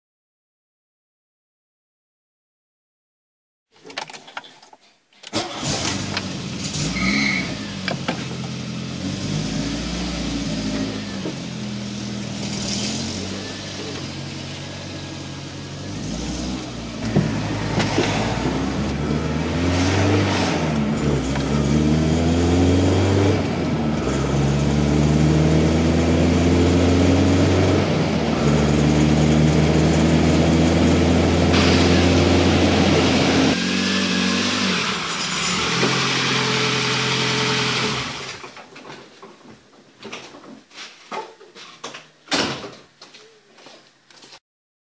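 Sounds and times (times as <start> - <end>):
car engine accelerating: 5.4 - 38.4.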